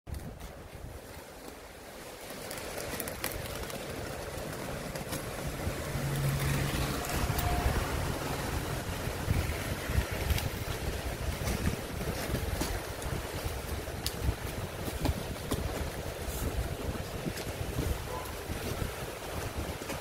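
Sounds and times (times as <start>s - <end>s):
bubble wrap rustling: 2.2s - 5.1s.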